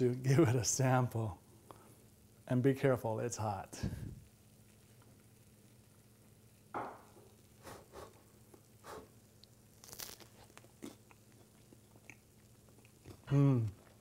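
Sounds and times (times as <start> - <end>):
chewing: 9.4 - 14.0
cracker crunching: 9.4 - 14.0.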